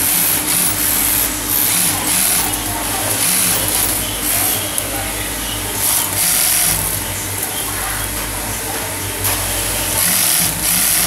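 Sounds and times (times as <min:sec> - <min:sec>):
sewing machine stitching: 0:00.0 - 0:04.8, 0:05.8 - 0:07.7, 0:09.8 - 0:11.0
sewing machine humming: 0:00.0 - 0:11.0.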